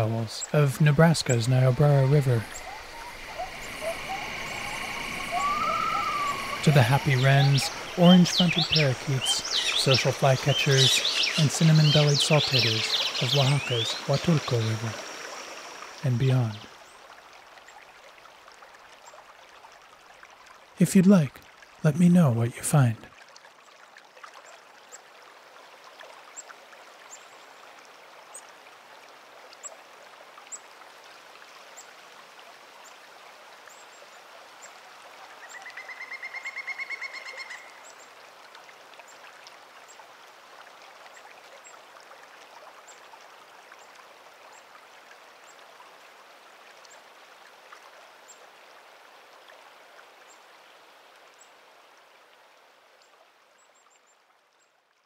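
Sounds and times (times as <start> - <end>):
river burbling over stones: 0.0 - 35.7.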